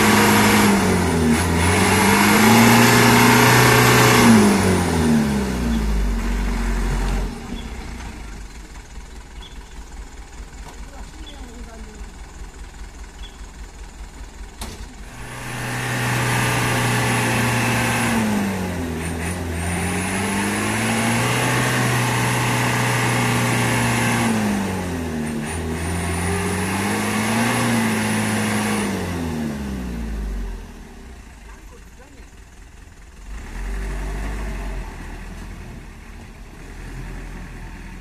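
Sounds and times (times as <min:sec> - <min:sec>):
truck diesel engine revving: 0:00.0 - 0:38.0.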